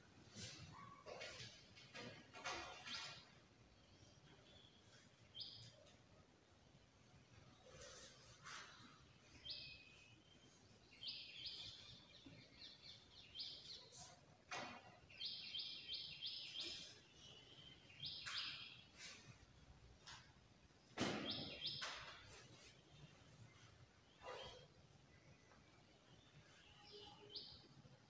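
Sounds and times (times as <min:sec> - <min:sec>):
bird chirping: 0:02.8 - 0:06.0, 0:07.6 - 0:19.2, 0:21.2 - 0:28.0
loud thump: 0:21.0 - 0:21.4.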